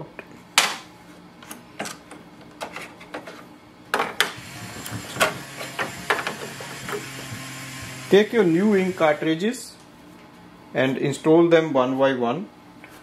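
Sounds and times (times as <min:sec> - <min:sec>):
printer humming: 0:04.3 - 0:09.7.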